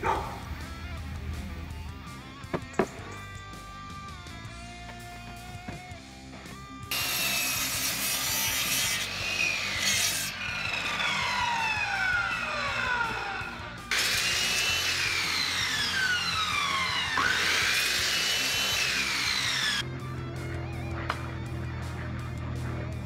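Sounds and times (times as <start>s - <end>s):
miter saw cutting wood: 6.9s - 19.9s.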